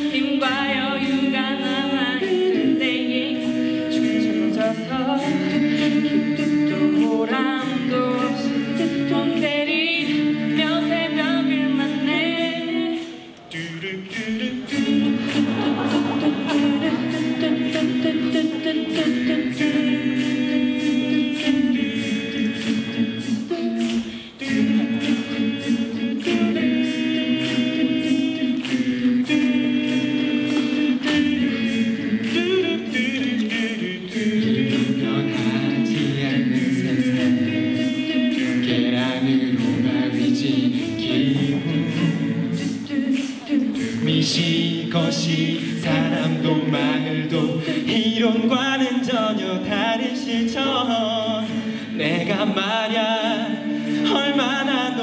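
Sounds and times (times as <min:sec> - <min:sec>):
choir singing a cappella: 0:00.0 - 0:55.0
steady clicking beat: 0:00.0 - 0:55.0.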